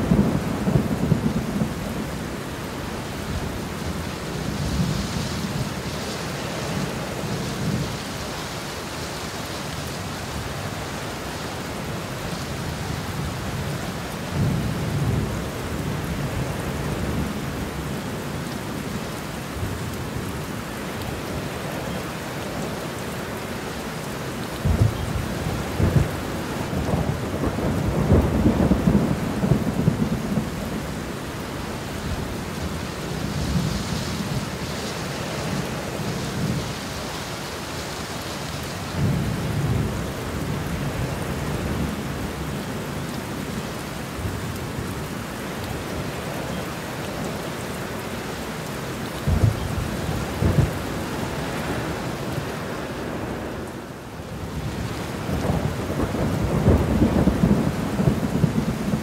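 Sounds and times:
heavy rain pouring: 0.0 - 59.0
thunder rumbling and cracking: 24.6 - 30.8, 49.3 - 50.9, 54.6 - 59.0.

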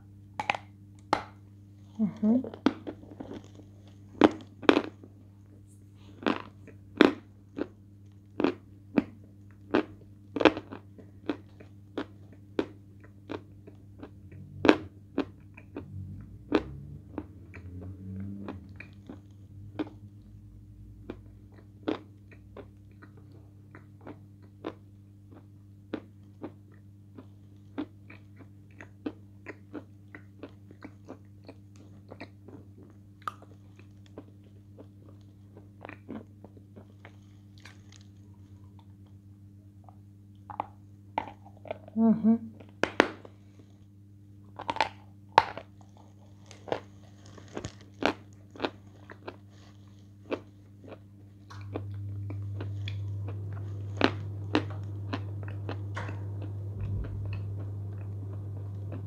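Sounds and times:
crisp crunching bites: 44.6 - 49.4.

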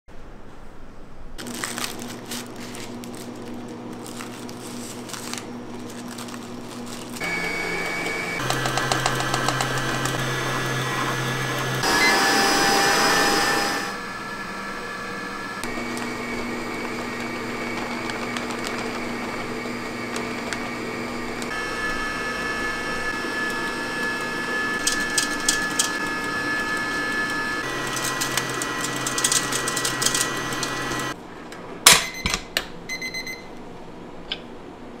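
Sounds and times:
electric mixer motor running: 5.5 - 31.2.

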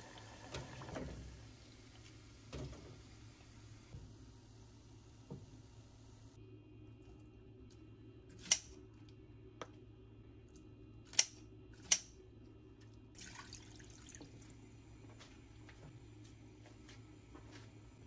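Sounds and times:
liquid pouring into pot: 13.2 - 14.3.

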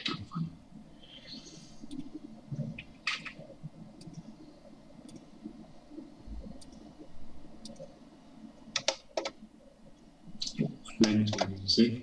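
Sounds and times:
low room noise: 0.0 - 12.0
computer mouse clicks: 1.8 - 4.4, 5.0 - 5.4, 6.4 - 7.0, 7.6 - 8.0, 8.6 - 9.4.

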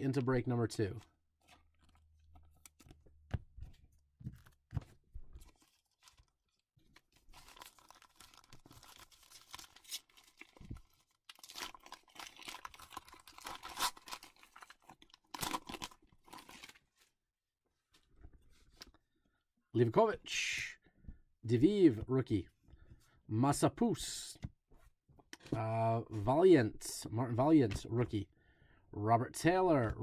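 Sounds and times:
foil wrapper tearing and crinkling: 5.6 - 16.9.

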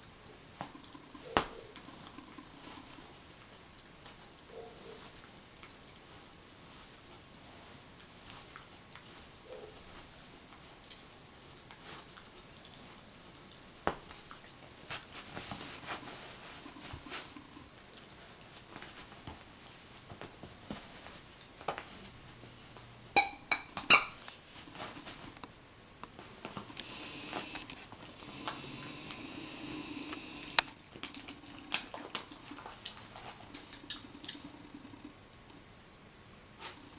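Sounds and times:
soft clicks and rustles: 0.0 - 22.9, 24.2 - 29.3, 30.0 - 35.9
toy squeaker squeaking: 23.9 - 24.6.

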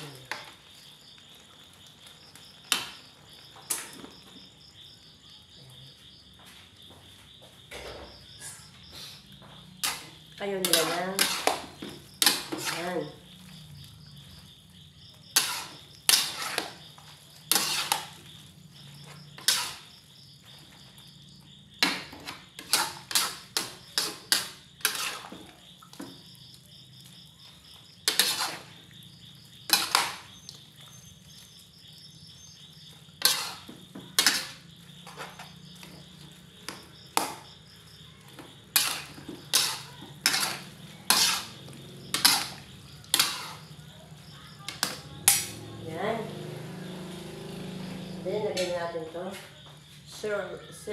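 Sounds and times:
utensils scraping a metal wok: 9.8 - 13.1, 15.3 - 20.0, 21.8 - 25.4, 28.0 - 28.8, 29.7 - 30.3, 33.2 - 37.4, 38.6 - 43.8, 44.7 - 45.5.

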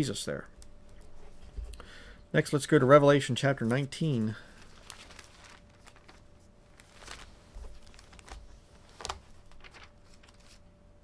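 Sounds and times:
thin paper pages rustling: 3.6 - 10.7.

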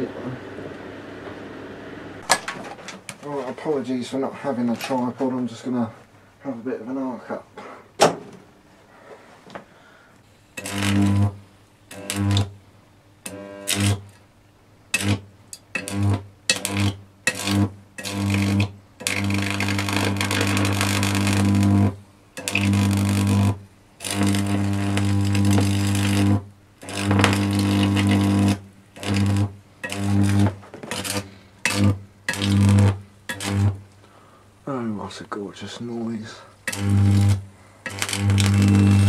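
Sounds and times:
electric arc buzzing and crackling: 10.5 - 12.6, 13.2 - 14.2, 14.9 - 34.0, 36.6 - 39.0.

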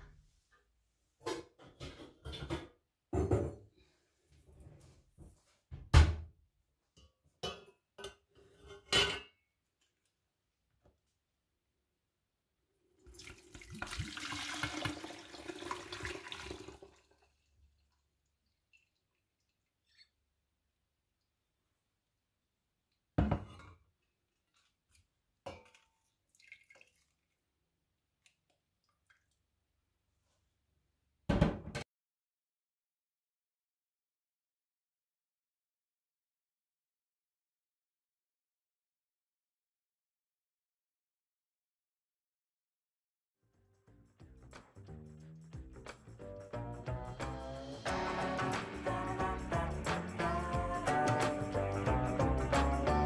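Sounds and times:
kitchenware knocks and clunks: 1.2 - 3.8, 7.0 - 9.4, 23.2 - 23.8, 31.3 - 31.8
small clicks and drips: 16.8 - 20.2, 24.3 - 29.7.

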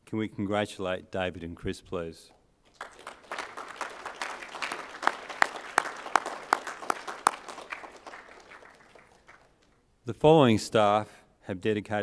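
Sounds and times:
audience applauding: 2.7 - 9.8.

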